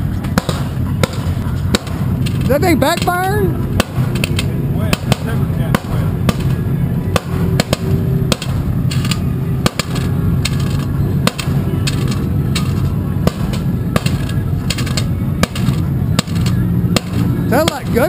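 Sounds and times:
engine running drone: 0.0 - 18.0
engine backfiring pops: 0.2 - 18.0.

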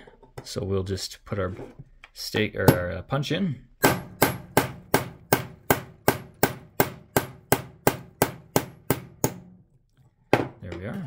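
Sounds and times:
hammer striking steel punch: 3.8 - 9.6.

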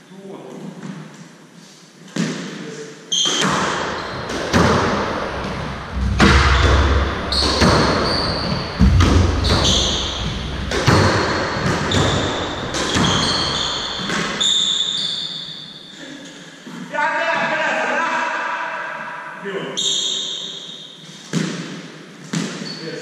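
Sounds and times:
shoes squeaking on wooden floor: 3.1 - 16.0
squash ball cracking off rackets: 3.2 - 14.4.

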